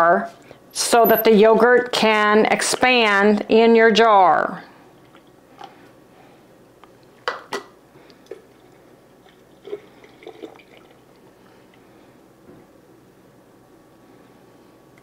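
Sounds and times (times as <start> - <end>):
liquid trickling through a funnel: 8.2 - 11.8.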